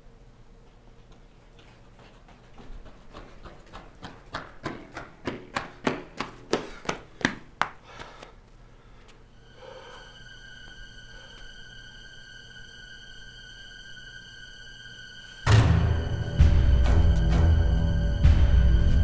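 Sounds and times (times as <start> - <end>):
footsteps on hard floor: 1.0 - 8.1.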